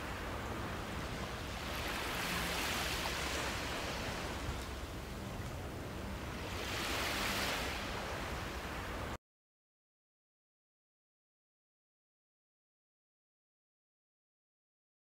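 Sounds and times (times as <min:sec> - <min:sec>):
ocean surf rushing: 0:00.0 - 0:09.2.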